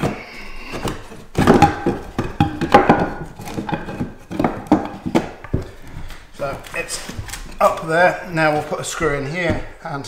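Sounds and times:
timber knocking on floorboards: 0:00.0 - 0:07.9.

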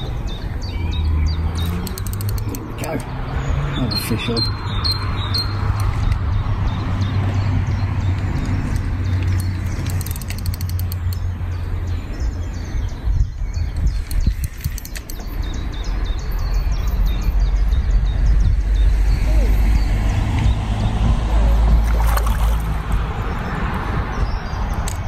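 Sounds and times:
fishing reel ratchet clicking: 0:01.7 - 0:02.6, 0:09.8 - 0:11.2.

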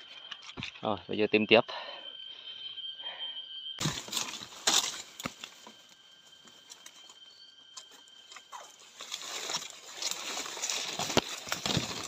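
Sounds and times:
faint high whine: 0:00.0 - 0:12.0
twigs snapping: 0:03.8 - 0:05.6, 0:08.3 - 0:12.0
rustling and crackling of leaves: 0:03.8 - 0:07.0, 0:07.8 - 0:12.0.

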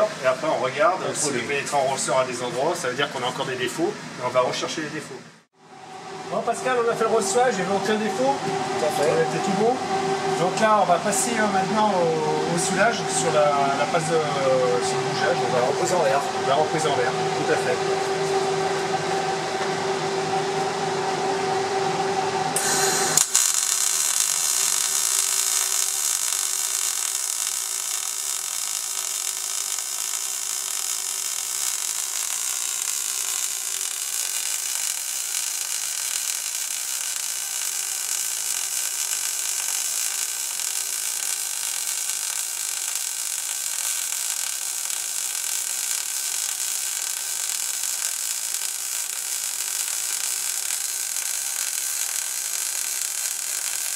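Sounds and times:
steady hum: 0:00.0 - 0:53.9
welding arc hissing: 0:22.6 - 0:53.9.

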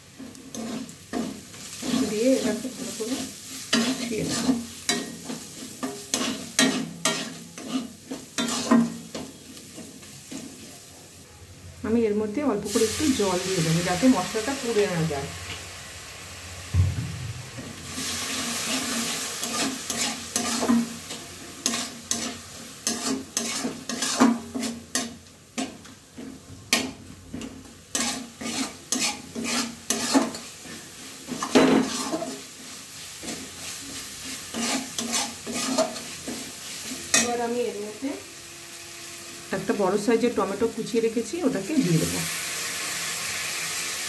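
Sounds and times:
food sizzling in a pan: 0:00.0 - 0:44.0
metal spatula scraping a pan: 0:00.2 - 0:10.7, 0:17.7 - 0:37.6.

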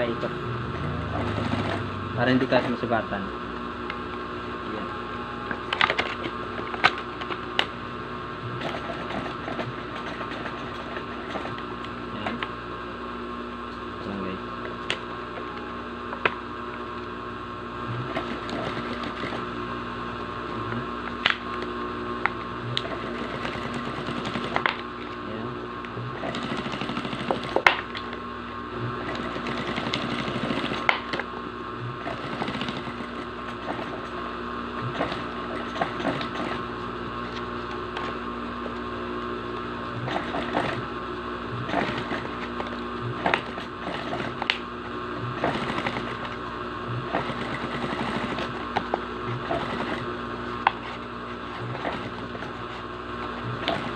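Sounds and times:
sewing machine stitching: 0:00.8 - 0:03.0, 0:08.6 - 0:11.6, 0:18.0 - 0:19.5, 0:22.8 - 0:24.8, 0:26.1 - 0:27.8, 0:29.0 - 0:31.0, 0:32.0 - 0:34.2, 0:34.8 - 0:36.7, 0:40.0 - 0:40.9, 0:41.6 - 0:44.4, 0:45.3 - 0:46.4, 0:47.0 - 0:48.7, 0:49.3 - 0:50.2, 0:51.4 - 0:52.7, 0:53.6 - 0:53.9.

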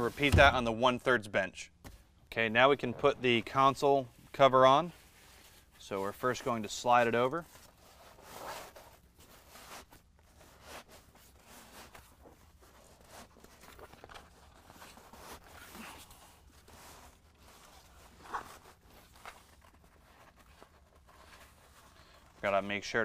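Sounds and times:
fabric rustling and scraping: 0:07.4 - 0:22.6.

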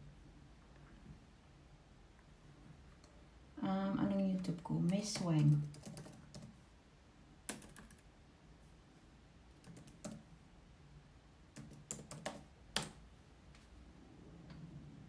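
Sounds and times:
laptop keyboard typing: 0:04.4 - 0:06.6, 0:07.4 - 0:08.1, 0:09.5 - 0:10.3, 0:11.5 - 0:13.0.

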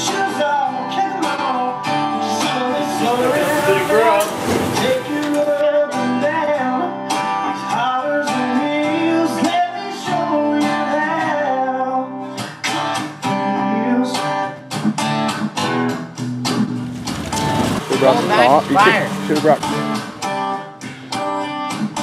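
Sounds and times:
person singing: 0:00.0 - 0:12.1
strummed acoustic guitar: 0:00.0 - 0:22.0.

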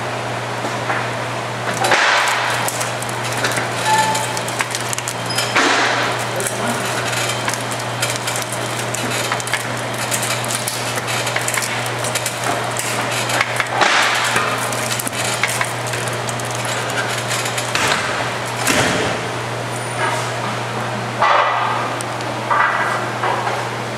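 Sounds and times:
machine low hum: 0:00.0 - 0:21.2
machine rattling clatter: 0:01.6 - 0:19.4.

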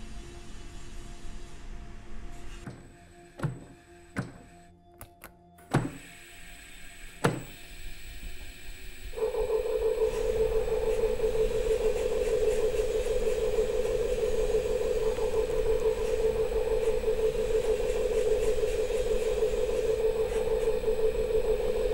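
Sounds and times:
machine motor humming: 0:02.7 - 0:21.9
single knock: 0:03.4 - 0:04.5.

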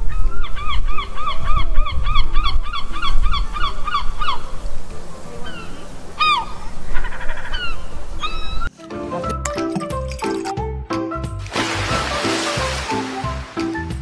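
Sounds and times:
wind rumble on microphone: 0:00.0 - 0:06.9.

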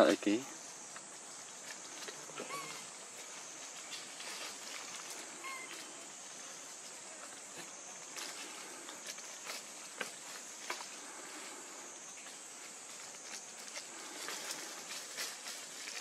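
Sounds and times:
high insect drone: 0:00.0 - 0:16.0
rustling in dry leaves: 0:00.0 - 0:16.0.

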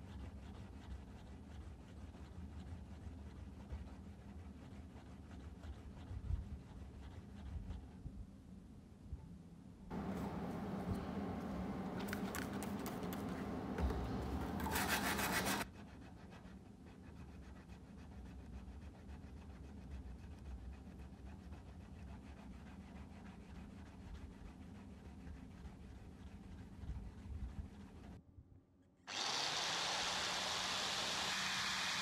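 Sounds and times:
file scraping knife blade: 0:13.8 - 0:15.6.

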